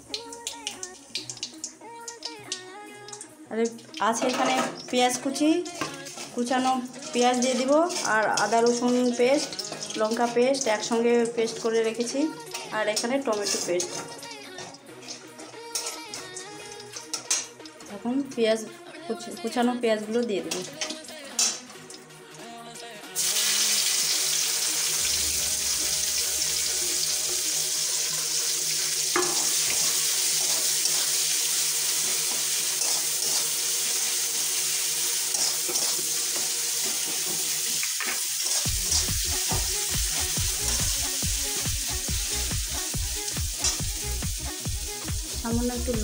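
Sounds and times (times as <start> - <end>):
onions sizzling in hot oil: 0.0 - 18.2, 23.1 - 46.0
spatula stirring: 5.6 - 10.6, 12.4 - 17.6, 29.1 - 31.2, 32.0 - 34.0, 35.3 - 37.4.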